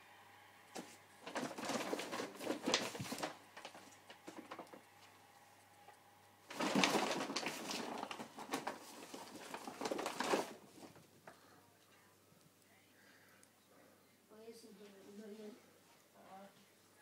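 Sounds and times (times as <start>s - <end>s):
plastic bags crinkling: 0.8s - 5.0s, 6.4s - 11.1s.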